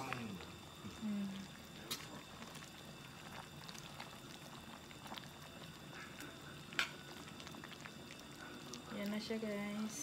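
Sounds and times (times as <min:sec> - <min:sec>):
stew bubbling in a pot: 0:00.0 - 0:10.0.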